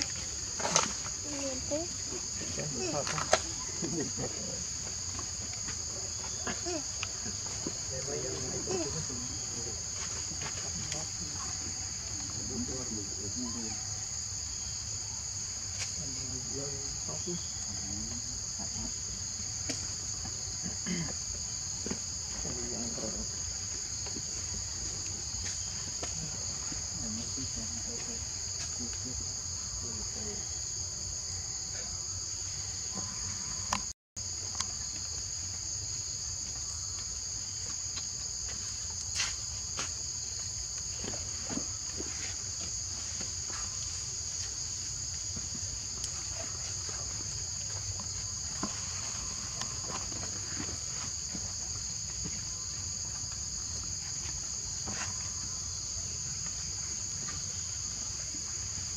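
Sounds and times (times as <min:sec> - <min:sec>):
high-pitched insect chorus: 0:00.0 - 0:58.9.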